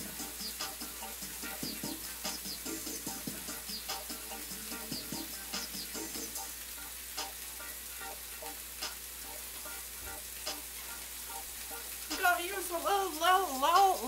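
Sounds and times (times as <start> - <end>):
faint background music: 0.0 - 14.0
food sizzling in a frying pan: 0.0 - 14.0.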